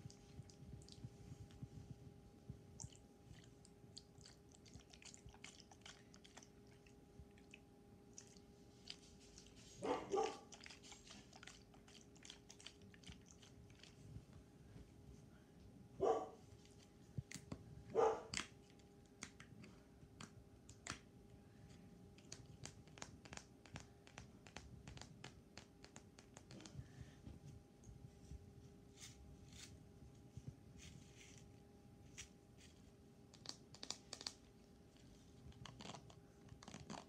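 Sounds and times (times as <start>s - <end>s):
faint steady hum: 0.0s - 37.0s
bark-like yelps: 9.8s - 10.5s, 16.0s - 16.4s, 18.0s - 18.3s.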